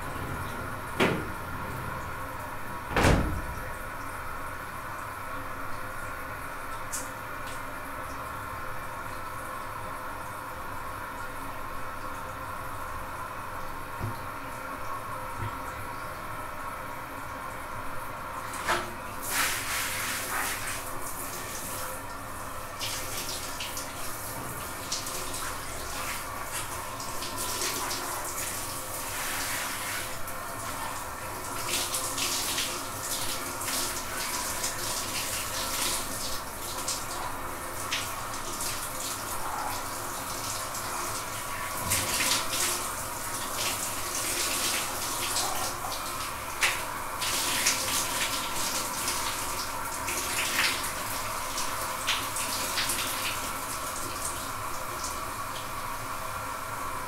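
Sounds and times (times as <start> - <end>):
shower water spraying: 18.5 - 21.8, 22.7 - 55.2.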